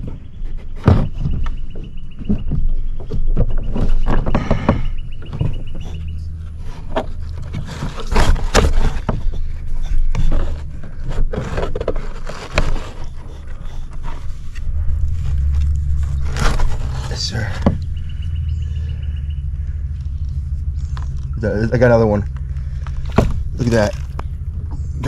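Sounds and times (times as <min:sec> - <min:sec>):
knocks and scrapes on plastic hull: 0:00.0 - 0:25.0
low rumble: 0:12.0 - 0:25.0.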